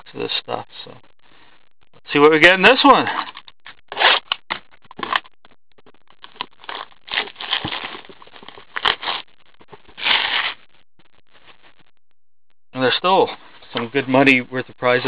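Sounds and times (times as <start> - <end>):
cardboard scraping and rustling: 6.7 - 9.2.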